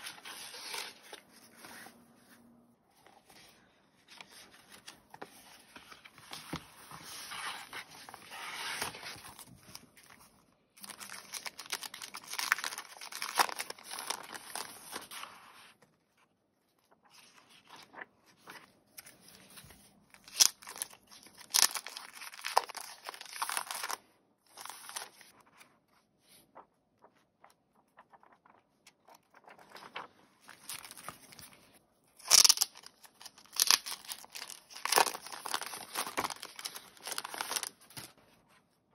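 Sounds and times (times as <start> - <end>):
paper rustling: 0.0 - 38.7
cellophane crinkling: 10.8 - 15.2, 32.2 - 38.1.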